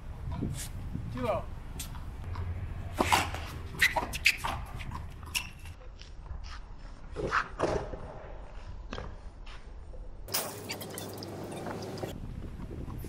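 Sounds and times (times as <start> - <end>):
shoe scuffs: 2.9 - 7.8.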